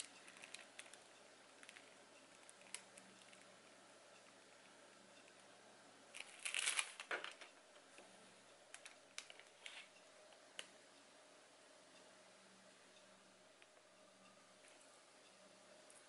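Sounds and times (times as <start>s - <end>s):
crinkling rustle: 0.0s - 1.0s, 6.1s - 7.6s.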